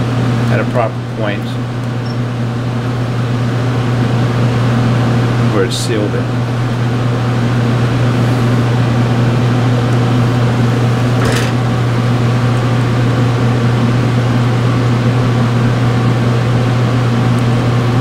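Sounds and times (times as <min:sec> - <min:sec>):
laboratory equipment humming: 0:00.0 - 0:18.0.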